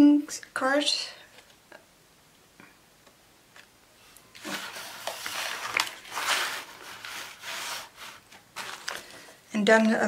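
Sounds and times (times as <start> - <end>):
paper and card rustling: 4.4 - 9.4.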